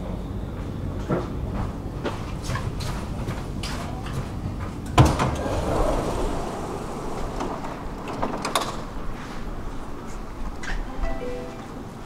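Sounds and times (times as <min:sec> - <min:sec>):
stopped train background hum: 0:00.0 - 0:12.0
train sliding doors opening: 0:02.2 - 0:12.0
door clunk: 0:05.0 - 0:09.3.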